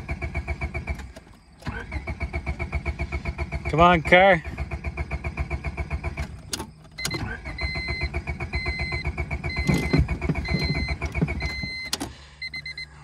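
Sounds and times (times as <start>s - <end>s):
engine cranking by starter: 0.0s - 13.0s
high beeping: 5.8s - 13.0s.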